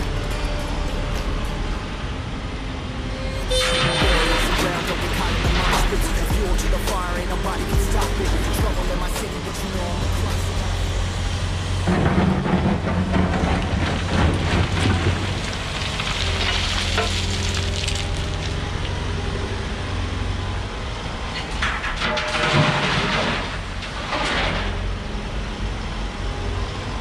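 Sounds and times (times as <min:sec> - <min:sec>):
diesel engine under load: 0:00.0 - 0:27.0
excavator bucket scraping: 0:03.4 - 0:18.8, 0:21.3 - 0:24.9
spoil rumbling and crunching: 0:04.0 - 0:19.1, 0:21.4 - 0:24.8.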